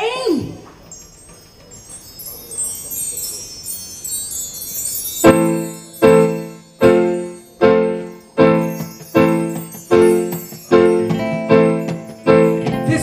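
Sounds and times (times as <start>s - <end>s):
shimmering high chimes: 0.8s - 13.0s
keyboard striking loud chords: 5.2s - 13.0s.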